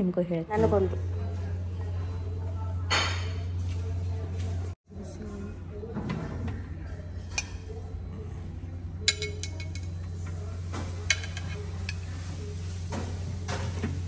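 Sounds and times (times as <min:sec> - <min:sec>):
steady low hum: 0:00.0 - 0:13.7
metal tongs clinking: 0:09.0 - 0:10.1, 0:11.1 - 0:12.1.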